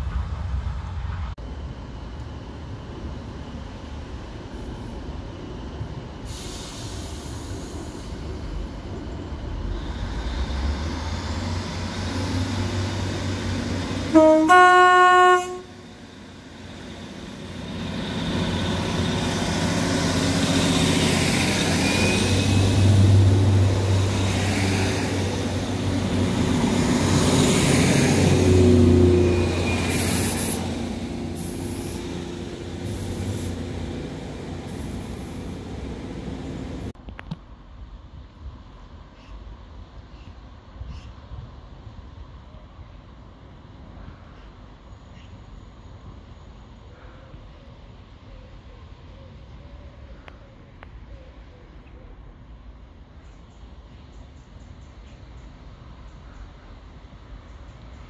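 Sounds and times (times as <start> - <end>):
diesel train engine humming: 0.0 - 37.0
two-tone train horn: 14.1 - 16.0
train wheels on rails: 15.4 - 37.4.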